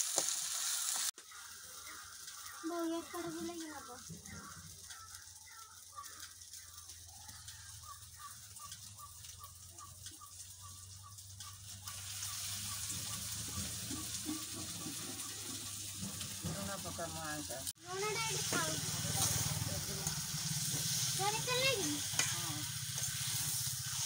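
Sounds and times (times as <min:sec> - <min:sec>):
chicken sizzling in hot oil: 0:00.0 - 0:24.0.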